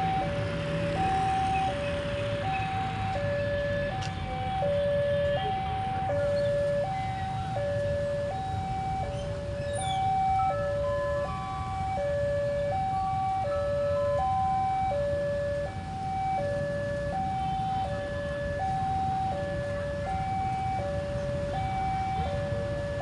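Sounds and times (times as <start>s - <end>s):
level crossing two-tone alarm: 1.0s - 23.0s.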